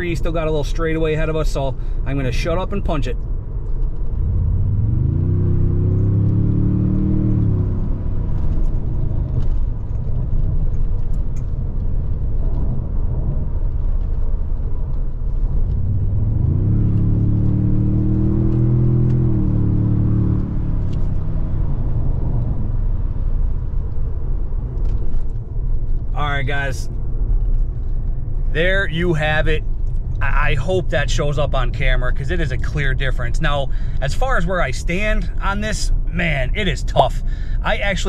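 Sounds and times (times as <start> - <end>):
road and tyre noise: 0.0 - 38.0
engine accelerating hard: 4.1 - 10.0, 15.7 - 23.2.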